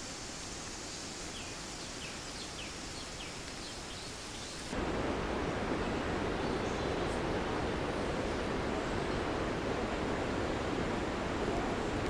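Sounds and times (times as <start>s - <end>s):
distant waterfalls rushing: 0.0s - 12.0s
deep water rushing: 4.7s - 12.0s.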